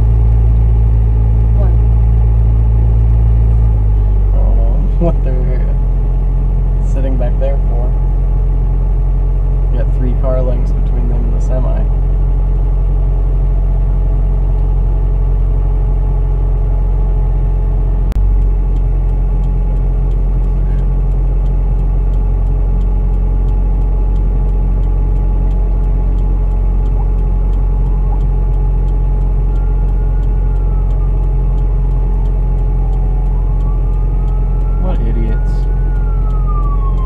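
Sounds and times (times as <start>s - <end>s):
car engine and road drone: 0.0s - 37.0s
faint ticking: 18.1s - 37.0s
ambulance siren wailing: 24.6s - 37.0s.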